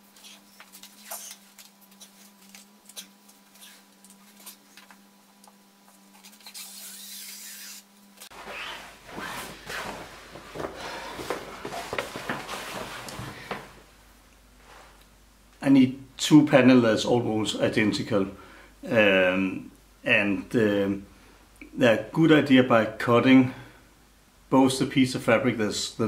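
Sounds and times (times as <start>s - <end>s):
cloth rubbing and rustling: 8.2s - 13.9s, 14.5s - 15.0s.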